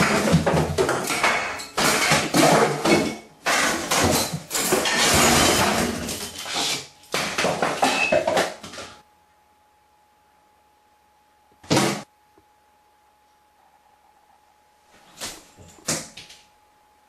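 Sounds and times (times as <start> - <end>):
crockery clattering: 0.0 - 6.6
faint steady whine: 3.0 - 17.0.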